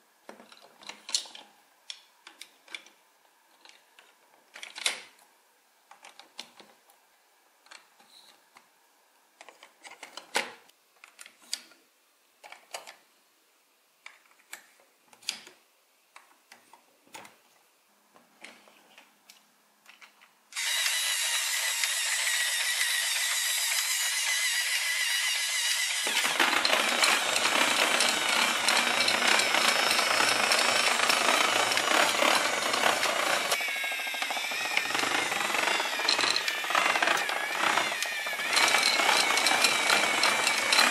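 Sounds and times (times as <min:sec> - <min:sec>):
toy motor rattling gears: 0:20.6 - 0:40.9
plastic blocks clicking: 0:25.4 - 0:40.9.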